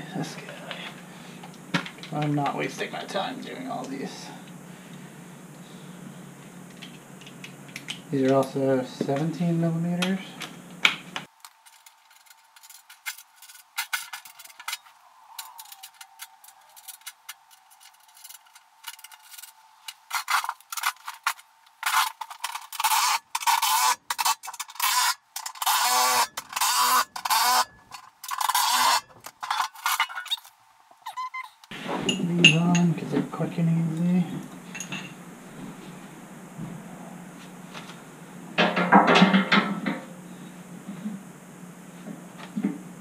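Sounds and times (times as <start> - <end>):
cordless drill bursts: 24.8 - 27.7
bolts and washers clinking on metal: 34.7 - 35.2.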